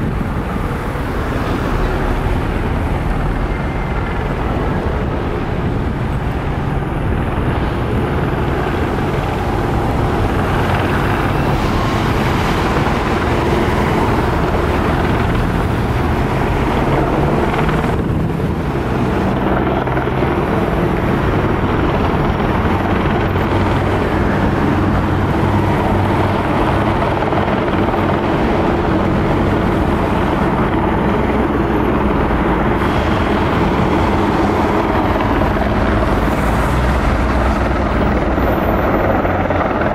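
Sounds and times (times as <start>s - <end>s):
heavy motor running: 8.6s - 39.0s.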